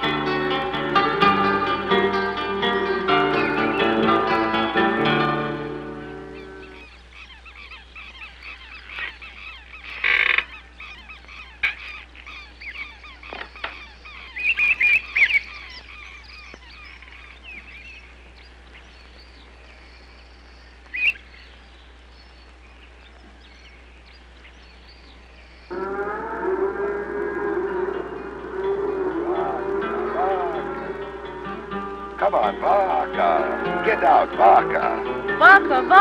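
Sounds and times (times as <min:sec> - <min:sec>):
birds calling and chattering: 0:00.0 - 0:36.0
loud bird squawks: 0:06.1 - 0:17.8, 0:20.9 - 0:21.3.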